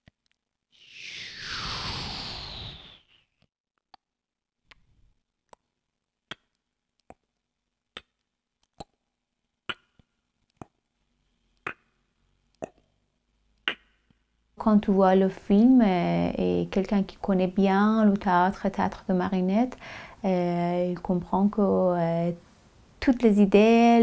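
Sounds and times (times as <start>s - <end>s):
whoosh falling in pitch: 0.8s - 3.2s.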